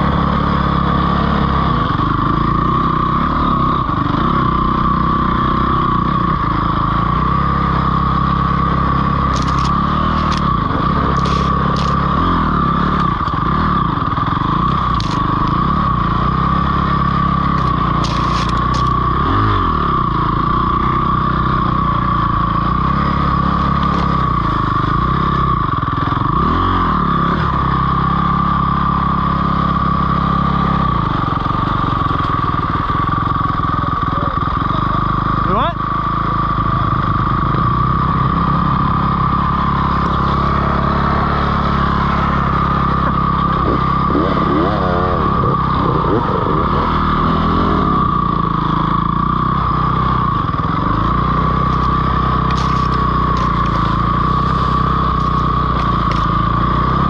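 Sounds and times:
dirt bike engine revving: 0:00.0 - 0:57.0
sharp clicks and clatters: 0:09.3 - 0:12.0, 0:17.5 - 0:19.0, 0:51.0 - 0:56.4.

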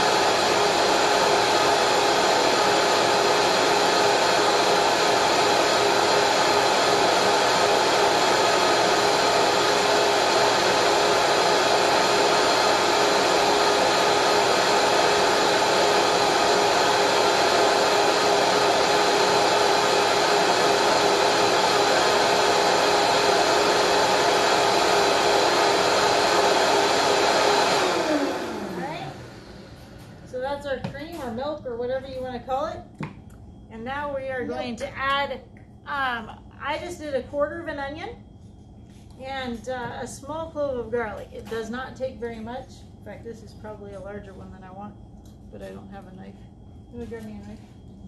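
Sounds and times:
blender running: 0:00.0 - 0:30.4.

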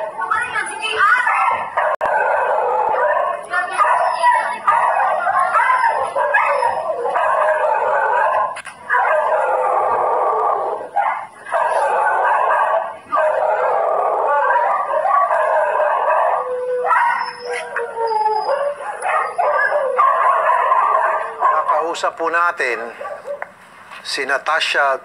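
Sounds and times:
dogs howling and yelping: 0:00.0 - 0:23.5.

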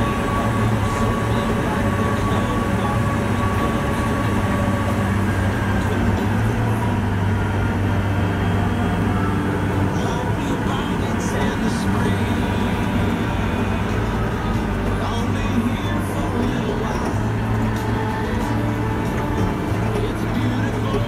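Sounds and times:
tractor diesel engine drone: 0:00.0 - 0:21.0.

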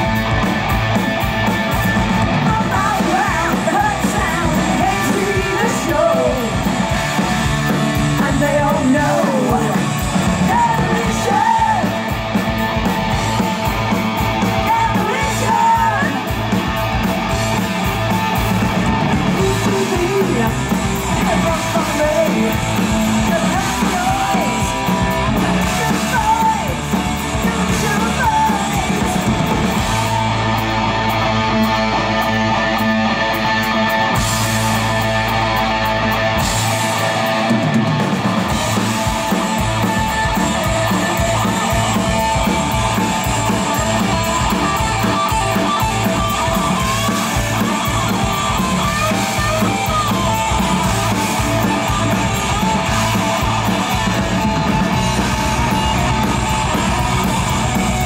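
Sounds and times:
heavy metal band playing: 0:00.0 - 0:58.0
woman singing: 0:02.4 - 0:06.7, 0:08.2 - 0:12.0, 0:14.6 - 0:16.2, 0:19.4 - 0:29.2.

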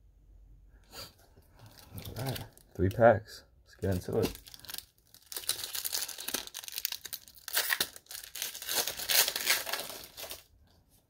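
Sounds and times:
foil wrapper tearing and crinkling: 0:01.6 - 0:03.0, 0:04.1 - 0:10.5.

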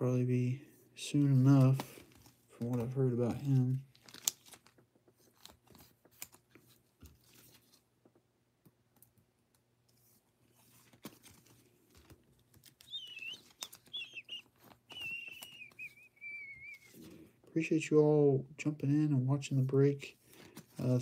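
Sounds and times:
cards sliding in plastic sleeves: 0:01.2 - 0:07.9, 0:09.9 - 0:17.3, 0:20.1 - 0:21.0
faint high wavering whistle: 0:12.9 - 0:17.0.

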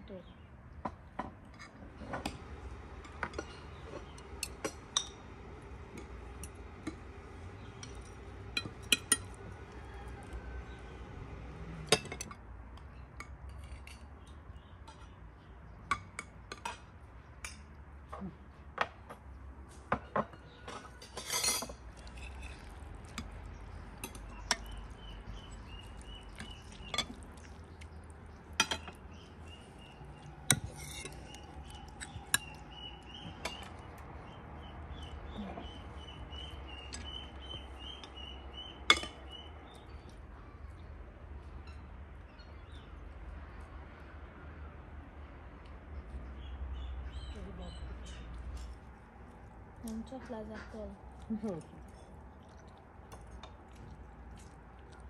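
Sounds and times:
cutlery clinking on porcelain plates: 0:20.0 - 0:23.4, 0:28.5 - 0:29.1.

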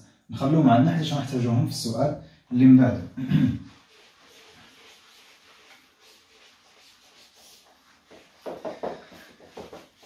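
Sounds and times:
eraser rubbing on whiteboard: 0:03.6 - 0:10.0.

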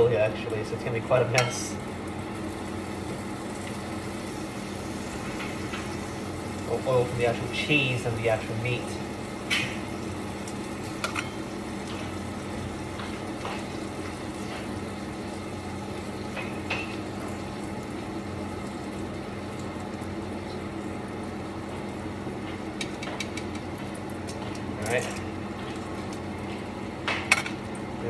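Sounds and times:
metal tongs tapping frying pan: 0:01.3 - 0:01.7.

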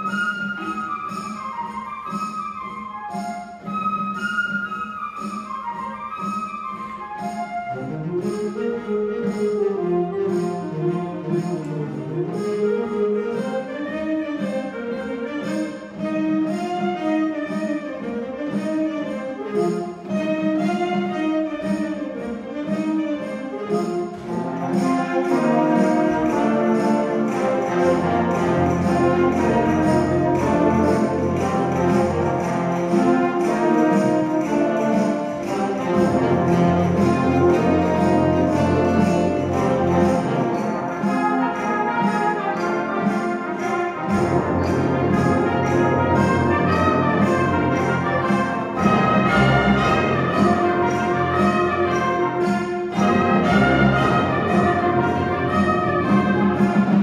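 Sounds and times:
concert band playing: 0:00.0 - 0:57.0
low brass: 0:23.2 - 0:57.0.

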